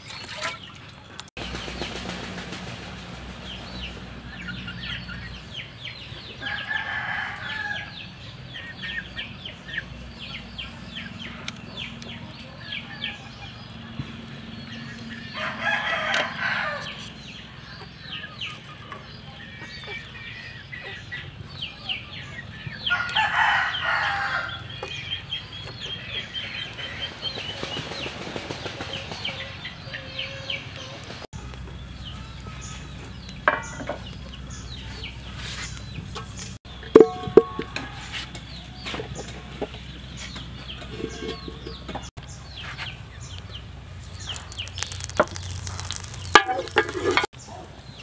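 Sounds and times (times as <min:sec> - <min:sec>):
chickens clucking: 0:00.3 - 0:48.0
rooster crowing: 0:06.4 - 0:08.0, 0:15.3 - 0:17.0, 0:22.9 - 0:24.7.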